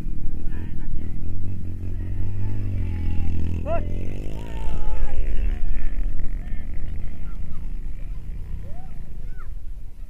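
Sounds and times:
motorcycle engine revving: 0.0s - 9.9s
people shouting: 1.9s - 6.0s, 8.6s - 9.6s.

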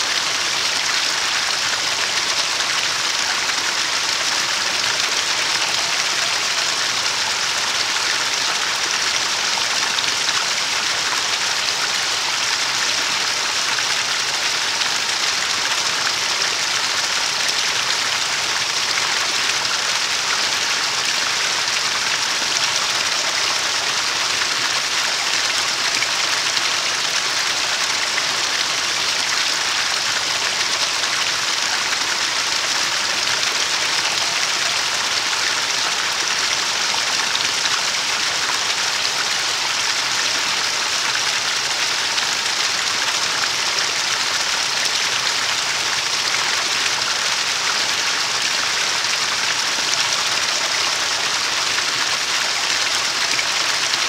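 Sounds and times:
stream water rushing: 0.0s - 54.0s.

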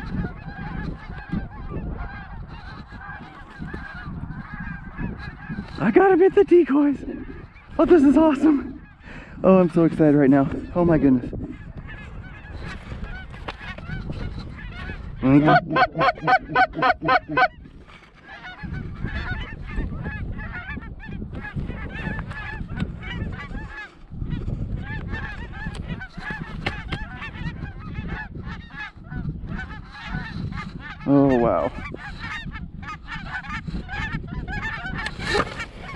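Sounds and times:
geese honking and cackling: 0.0s - 35.9s
close quick goose honks: 15.3s - 17.6s.

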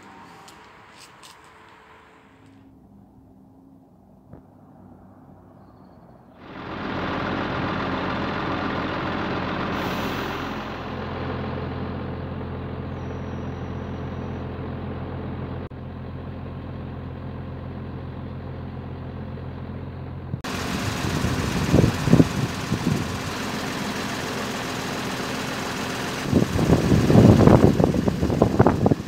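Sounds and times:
diesel engine running: 6.4s - 29.0s
air hiss: 9.7s - 11.0s.

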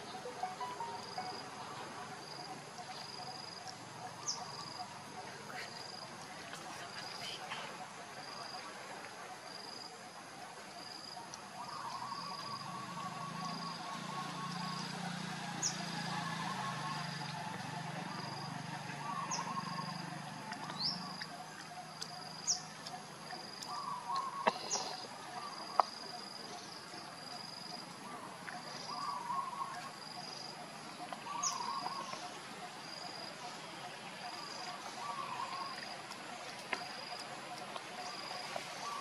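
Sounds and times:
birds chirping: 11.1s - 39.0s.

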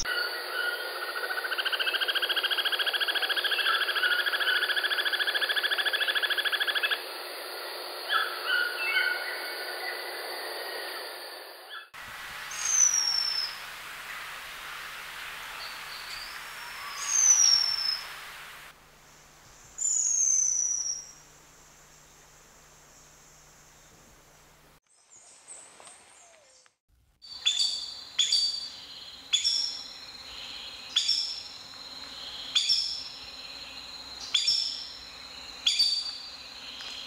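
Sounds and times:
bird high falling whistles: 11.8s - 13.7s, 15.5s - 18.6s.

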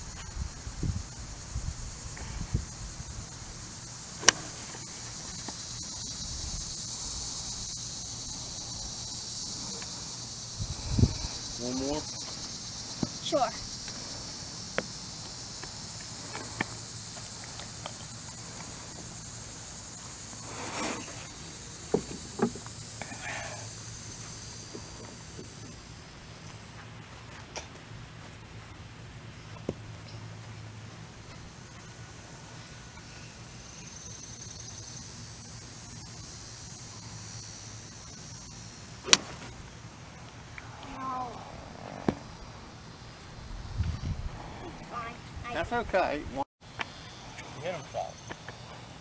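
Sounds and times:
high-pitched insect chorus: 0.0s - 49.0s
golf club striking ball: 4.2s - 4.5s, 39.0s - 39.5s.

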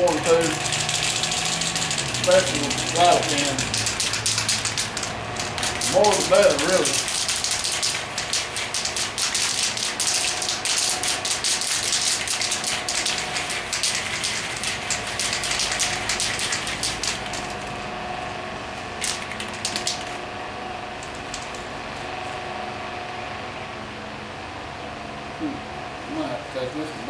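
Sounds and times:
spray paint can hissing: 0.0s - 17.8s, 19.0s - 20.2s.

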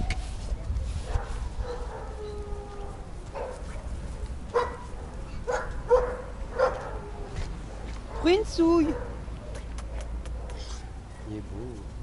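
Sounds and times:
dog barking: 1.0s - 2.2s, 2.8s - 7.1s, 7.8s - 11.4s.

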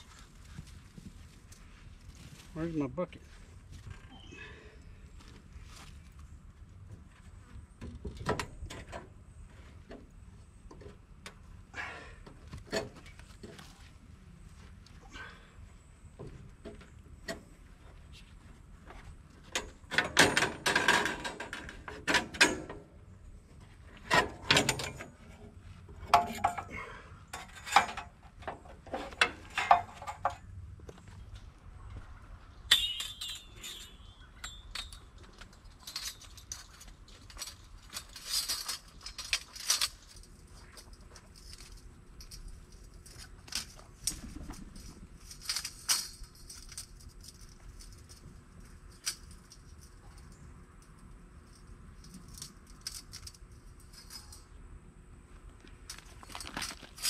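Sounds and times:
metal blade clinking and rattling: 32.7s - 43.8s, 45.2s - 48.2s.

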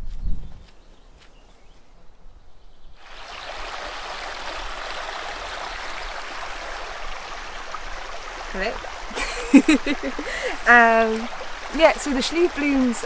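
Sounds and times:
stream water rushing: 3.0s - 13.0s.

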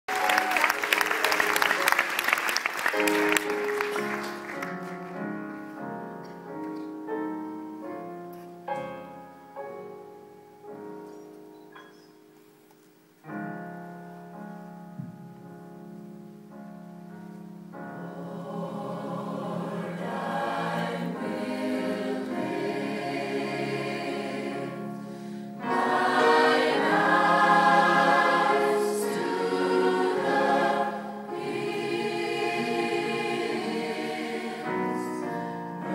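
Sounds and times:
applause: 0.0s - 5.2s
mixed choir singing: 18.0s - 35.9s.

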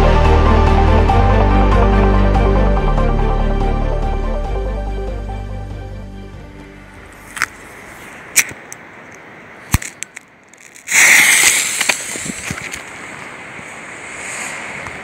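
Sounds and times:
fuse sputtering with hiss: 10.9s - 12.8s.

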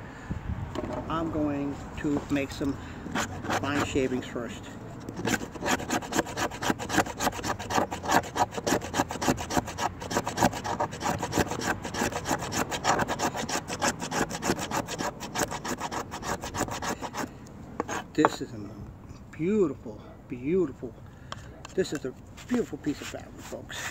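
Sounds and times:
knife scraping wood: 2.1s - 4.3s, 5.0s - 18.4s.

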